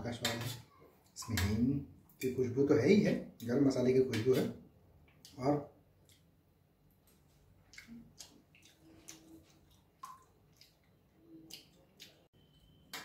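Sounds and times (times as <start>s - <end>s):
man chewing food: 6.0s - 12.8s.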